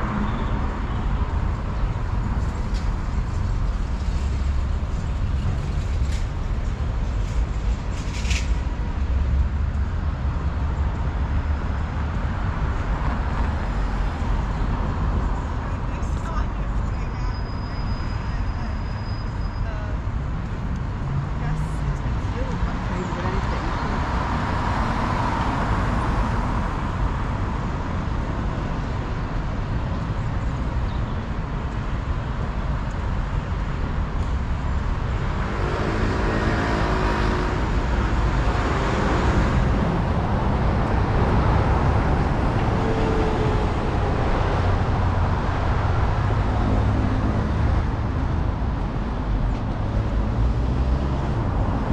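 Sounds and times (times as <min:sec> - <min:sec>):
cars passing on street: 0:00.0 - 0:51.9
loud vehicle passing: 0:35.0 - 0:51.9.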